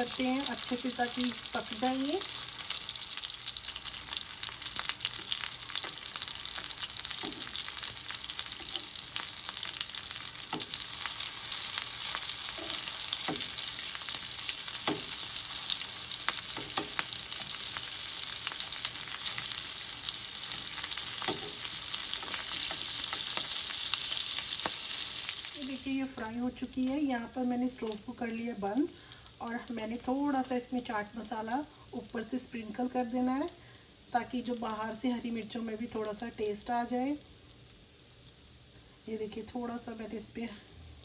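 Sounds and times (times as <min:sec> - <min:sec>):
chillies sizzling in oil: 0:00.0 - 0:41.0.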